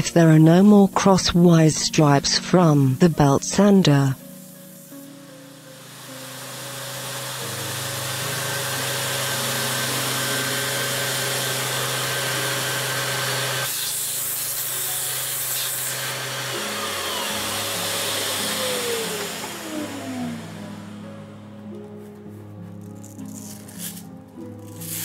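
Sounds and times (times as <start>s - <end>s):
dust extraction noise: 1.0s - 25.0s
high hiss: 2.2s - 7.9s
electric sander running: 5.0s - 22.2s.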